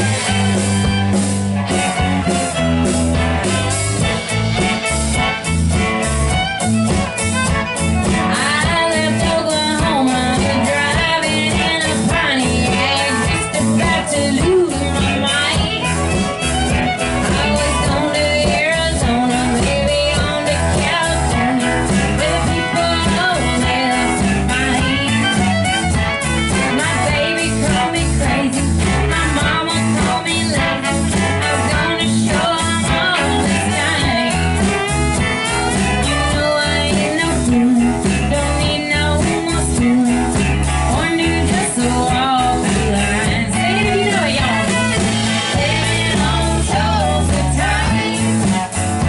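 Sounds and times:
live country band: 0.0s - 49.0s
woman singing: 8.0s - 25.9s, 26.5s - 49.0s.

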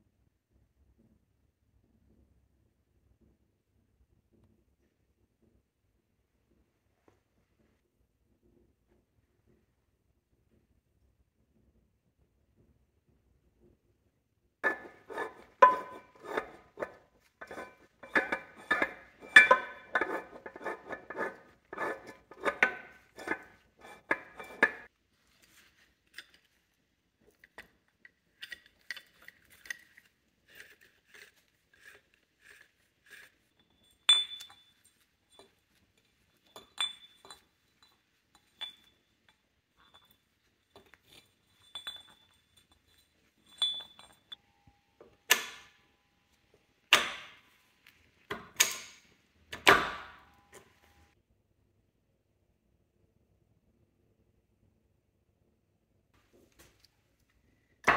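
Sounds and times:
metal parts clicking and clinking: 14.6s - 24.9s, 27.3s - 32.0s, 32.6s - 44.4s, 48.3s - 50.8s.

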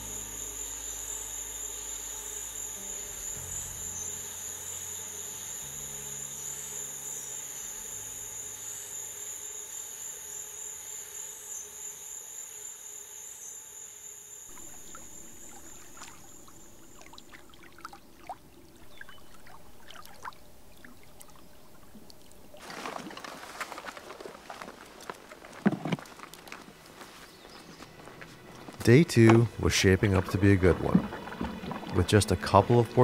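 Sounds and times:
night insects trilling: 0.0s - 20.3s
water lapping and trickling: 14.5s - 27.2s, 29.4s - 33.0s
small splashes and clicks: 22.0s - 26.6s.

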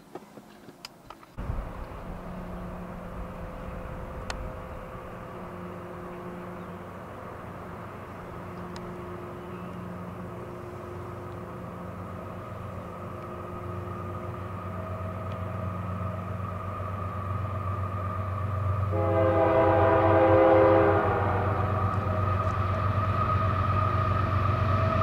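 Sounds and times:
diesel locomotive engine running: 1.1s - 25.0s.

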